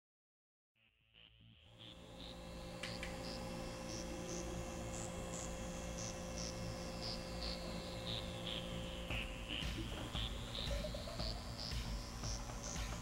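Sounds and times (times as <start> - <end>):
steady hum: 1.7 - 13.0
high electronic beeps: 1.8 - 13.0.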